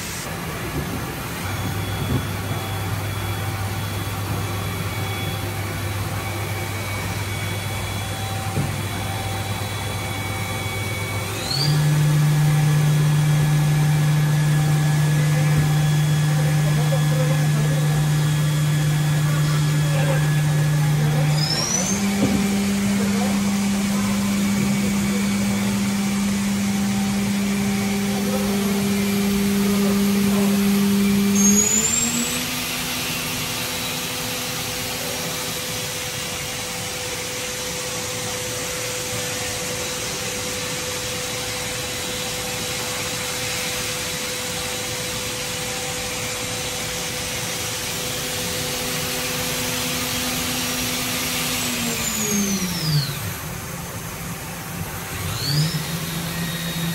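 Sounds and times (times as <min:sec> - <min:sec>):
machine spindle whining: 0:00.0 - 0:56.9.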